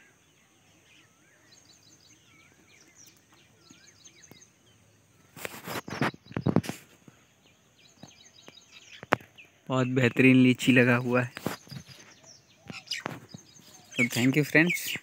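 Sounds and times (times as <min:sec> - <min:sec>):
birds chirping and whistling: 0:00.0 - 0:15.0
close rustling and crackling: 0:05.3 - 0:07.2, 0:10.6 - 0:15.0.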